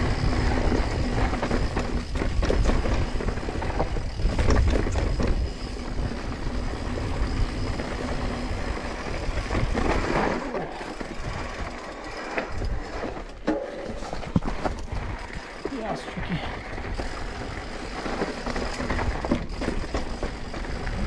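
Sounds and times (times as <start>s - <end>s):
wind rumble on microphone: 0.0s - 10.4s
bike rattling over bumps: 0.0s - 21.0s.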